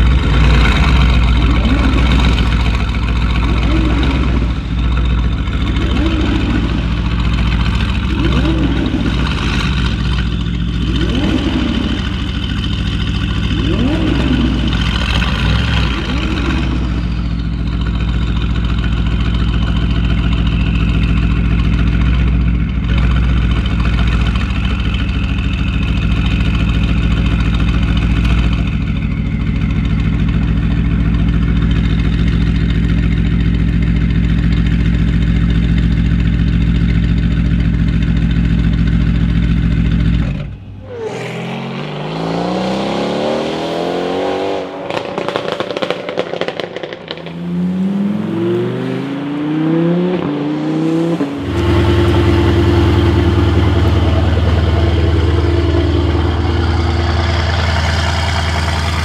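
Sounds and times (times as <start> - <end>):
car engine idling: 0.0 - 43.2, 49.5 - 59.0
car accelerating through gears: 5.6 - 17.6, 40.5 - 59.0.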